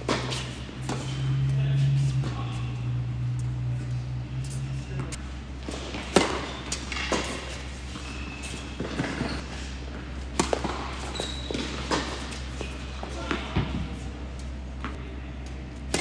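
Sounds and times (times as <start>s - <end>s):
steady low hum: 0.0s - 16.0s
tennis ball hits and bounces: 5.6s - 9.4s, 10.3s - 13.8s.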